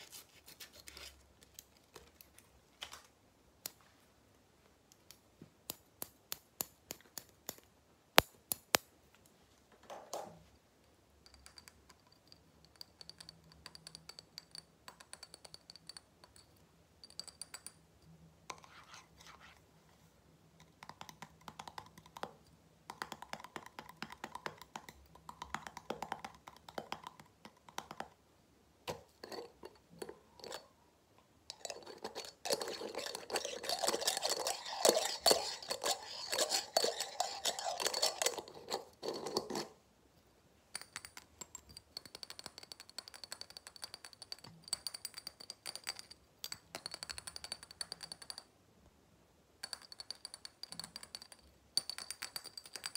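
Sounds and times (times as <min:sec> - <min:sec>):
fingernails tapping on glass jar: 0:31.5 - 0:39.6
scratching over metal lid: 0:31.5 - 0:39.8.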